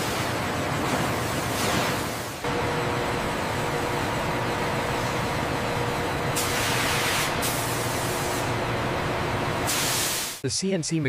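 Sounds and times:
machining equipment humming: 2.4 - 10.4
spraying hiss: 6.4 - 8.4, 9.7 - 10.4.

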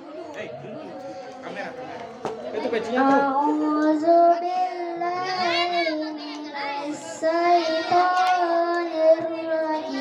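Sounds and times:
boy singing into a microphone: 0.0 - 10.0.

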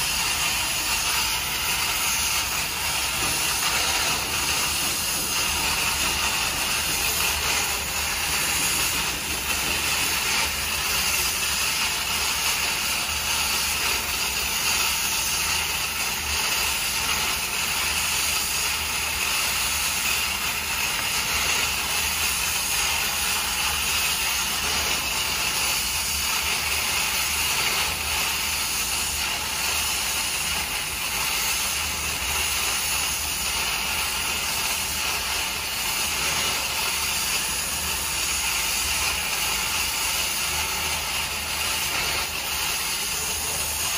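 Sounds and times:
water boiling in a cauldron: 0.0 - 43.9.

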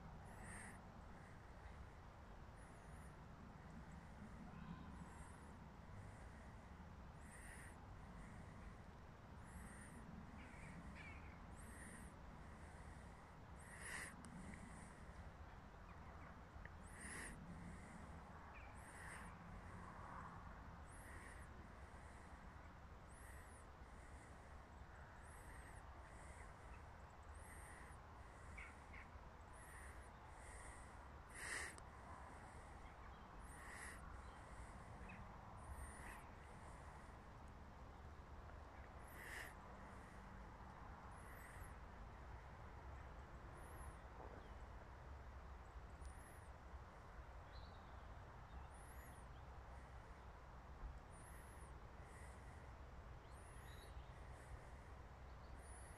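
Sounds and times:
faint open-air hum: 0.0 - 55.9
lower bird call: 27.4 - 31.8.

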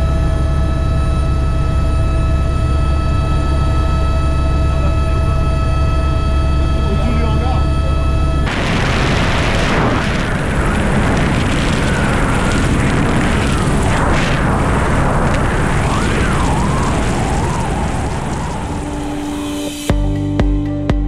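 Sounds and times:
helicopter noise: 0.0 - 19.9
wind buffeting microphone: 8.3 - 19.5
wind rushing: 8.5 - 19.9.

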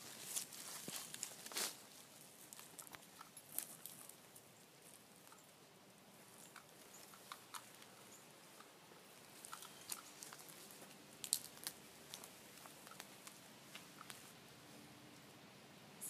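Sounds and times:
footsteps crunching on pine straw: 0.0 - 4.2, 9.2 - 14.3.

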